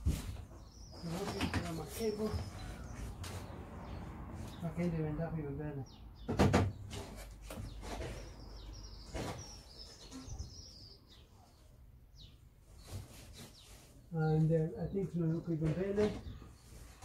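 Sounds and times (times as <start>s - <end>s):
knocks and shuffling in loft: 0.0s - 4.6s
birds chirping: 0.0s - 17.0s.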